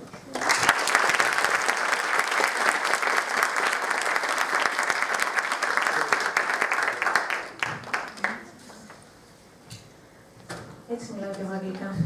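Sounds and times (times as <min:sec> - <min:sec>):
audience applauding: 0:00.3 - 0:08.8.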